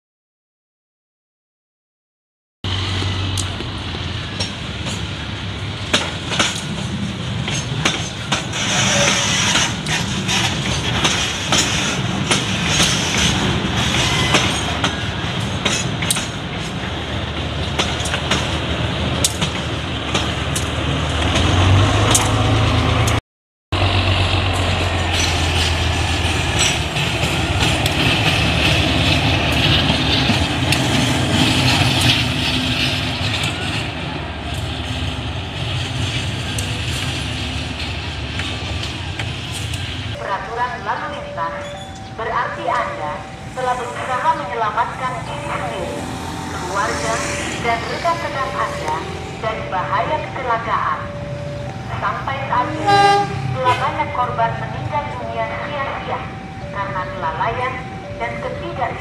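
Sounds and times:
locomotive engine running: 0:23.8 - 0:40.2.

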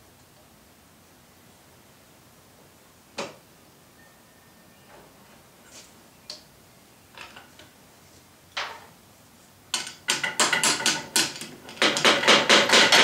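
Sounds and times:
sharp knocks on wood: 0:10.1 - 0:13.0.

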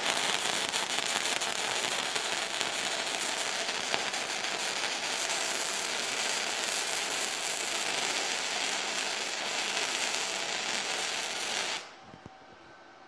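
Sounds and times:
welding arc crackling: 0:00.0 - 0:11.9.

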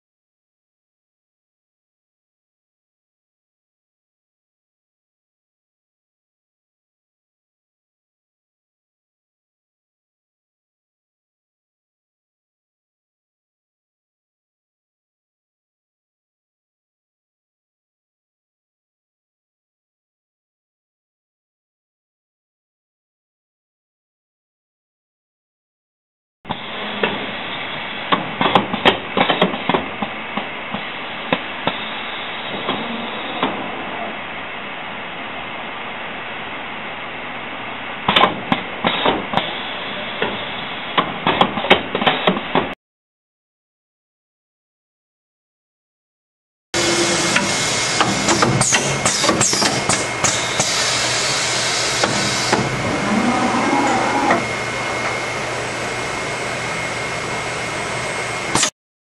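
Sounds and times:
factory machinery hum and whine: 0:26.5 - 0:42.7, 0:46.8 - 0:58.7
steady machine hum: 0:46.8 - 0:58.6
sharp machinery clanks and knocks: 0:47.4 - 0:50.7.

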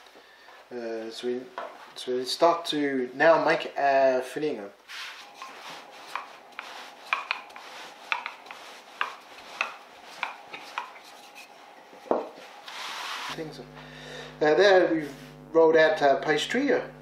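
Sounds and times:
rolling pin rubbing and knocking: 0:05.0 - 0:13.4.

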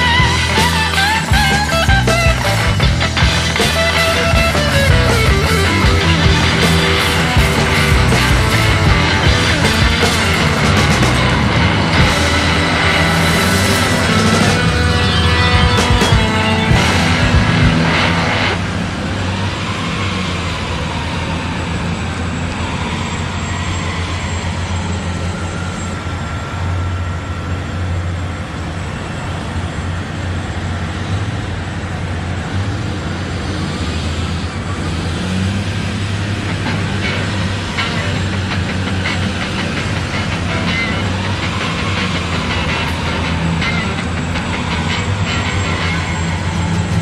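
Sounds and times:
heavy vehicle engine rumbling: 0:00.0 - 0:47.0.

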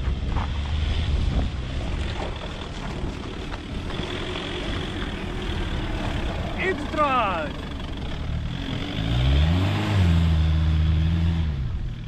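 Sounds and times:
wind rumbling on microphone: 0:00.0 - 0:06.6
car engine running low: 0:00.0 - 0:12.0.

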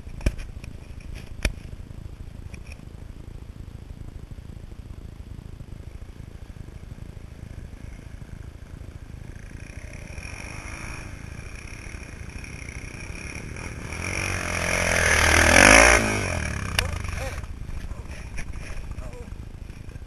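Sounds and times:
dirt bike engine revving: 0:06.9 - 0:20.0.

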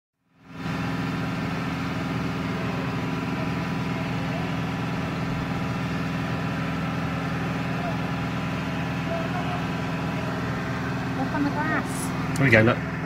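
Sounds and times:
vehicle engine idling: 0:00.2 - 0:13.0.

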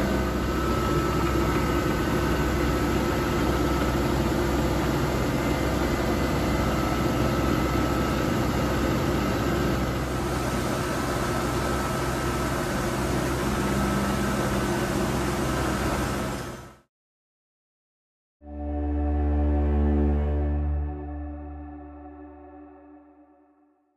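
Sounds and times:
milling machine humming: 0:00.0 - 0:16.6.

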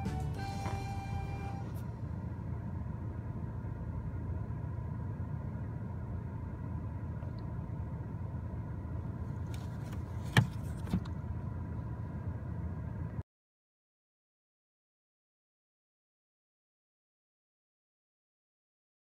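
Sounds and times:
car engine idling: 0:00.0 - 0:13.2.

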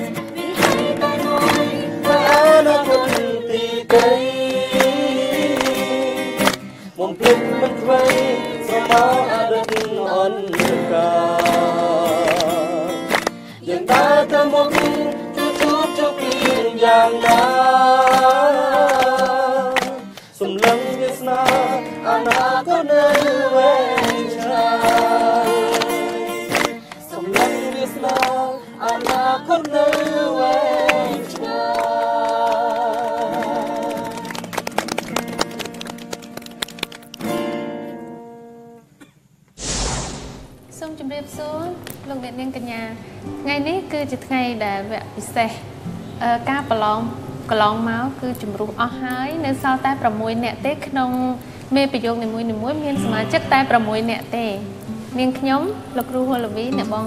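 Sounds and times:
person singing with vibrato: 0:00.0 - 0:29.5
strummed acoustic guitar: 0:00.0 - 0:31.5, 0:33.2 - 0:38.8, 0:52.9 - 0:55.2
hand claps: 0:00.2 - 0:23.4, 0:24.0 - 0:37.6
sharp hits: 0:39.6 - 0:40.8.

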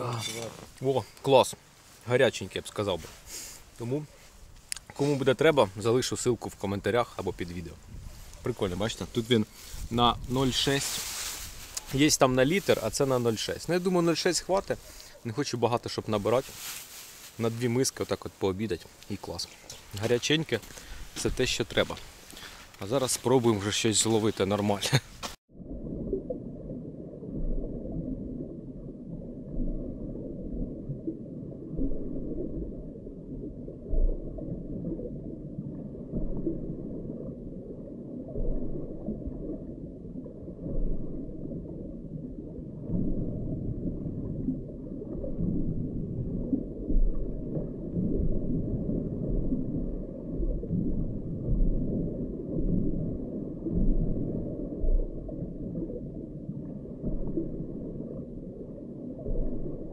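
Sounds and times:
underwater low rumble and gurgle: 0:05.4 - 0:16.0, 0:25.5 - 0:59.9.

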